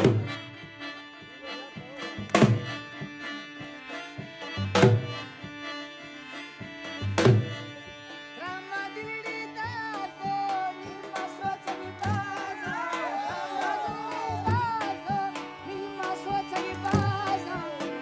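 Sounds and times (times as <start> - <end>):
drum beat with heavy bass strokes: 0.0 - 0.5, 1.8 - 2.9, 7.0 - 7.7
harmonium melody: 0.0 - 18.0
man singing: 8.4 - 18.0.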